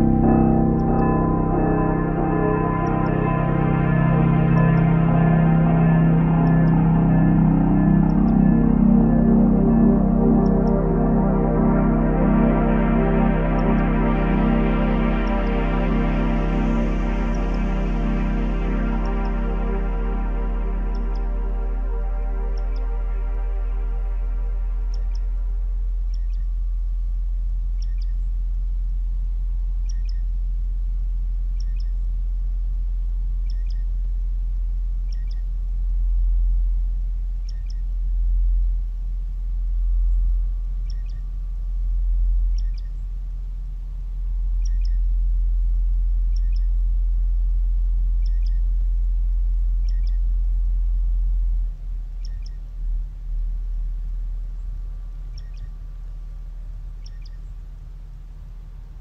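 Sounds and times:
deep bass drone: 0.0 - 59.0
high bird-like chirp: 57.0 - 57.5.

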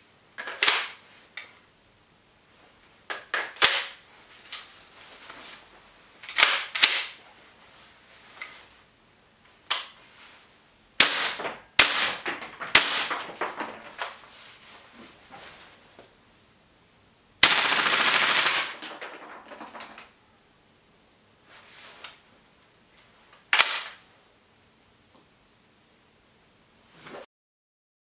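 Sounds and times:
airsoft rifle shots: 3.5 - 4.0, 6.3 - 7.2, 11.0 - 13.7, 17.4 - 19.0, 23.6 - 24.0.

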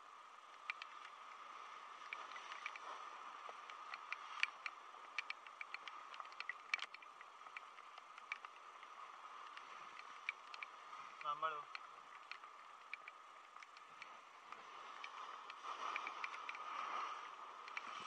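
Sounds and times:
raindrops ticking on camera: 3.5 - 16.6.

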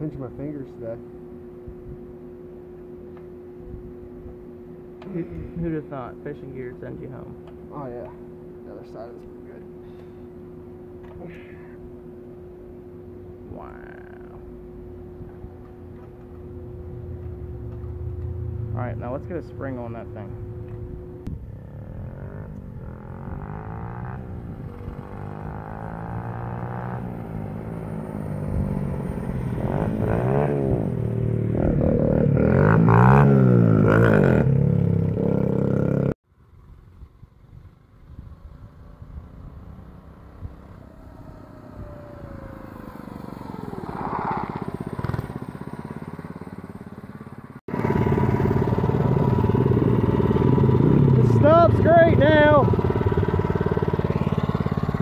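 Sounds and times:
small motorbike engine revving: 16.6 - 36.2, 37.9 - 55.0.

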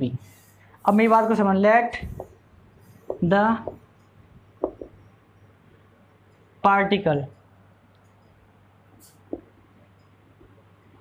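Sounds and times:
steady low hum: 0.0 - 11.0
marker scratching on whiteboard: 0.3 - 5.0.

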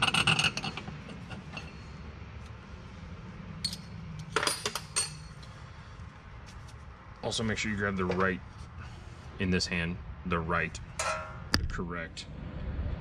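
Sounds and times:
metal washers and bolts clinking: 0.0 - 2.0, 3.6 - 5.6, 11.0 - 11.5.

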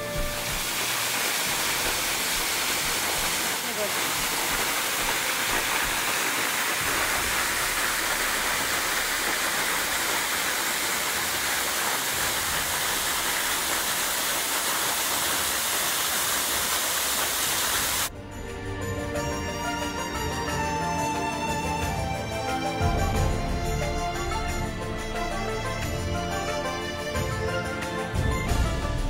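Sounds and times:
music: 0.0 - 4.4, 18.1 - 29.0
waterfall rushing: 0.0 - 18.1.

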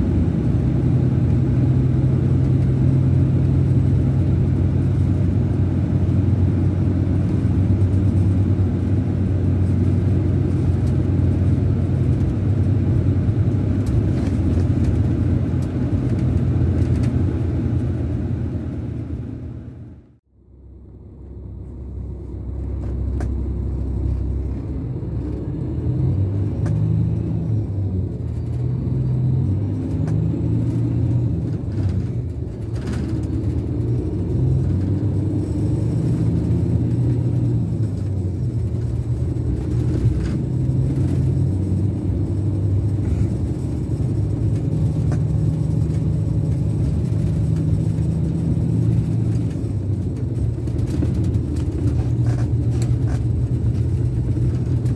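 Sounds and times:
bus diesel engine rumble: 0.0 - 54.9.

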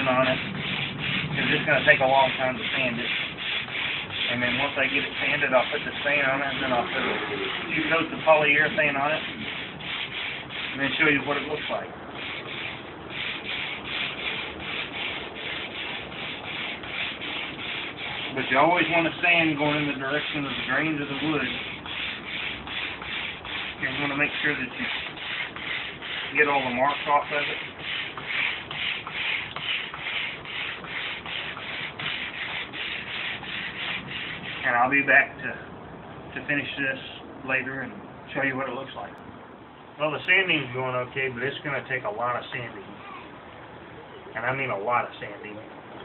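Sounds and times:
sandpaper rubbing on wood: 0.0 - 34.8.

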